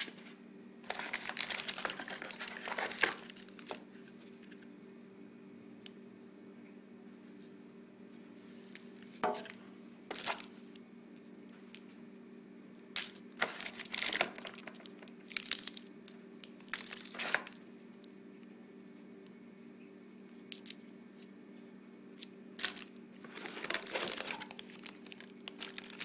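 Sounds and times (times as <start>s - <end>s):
steady low hum: 0.0s - 26.0s
plastic bags crinkling: 0.8s - 3.8s, 10.1s - 10.6s, 13.0s - 17.6s, 22.6s - 26.0s.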